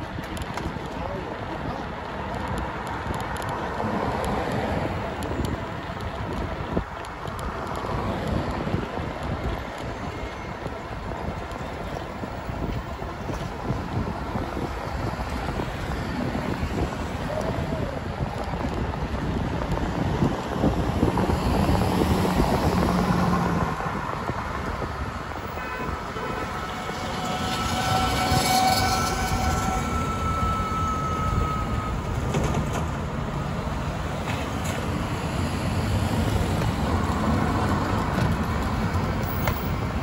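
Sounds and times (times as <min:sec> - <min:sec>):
road and wind noise: 0:00.0 - 0:40.0
faint whining tone: 0:26.4 - 0:32.7.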